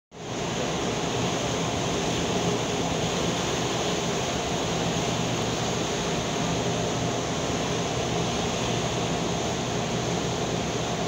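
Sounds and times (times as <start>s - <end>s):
boat engine drone: 0.2s - 11.0s
wind and water rushing: 0.2s - 11.0s.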